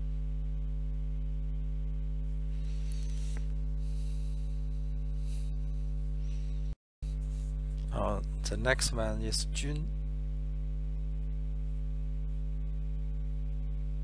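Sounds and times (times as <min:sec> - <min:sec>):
electrical mains hum: 0:00.0 - 0:14.0
ink brush swishing on paper: 0:02.5 - 0:05.8, 0:07.1 - 0:07.6.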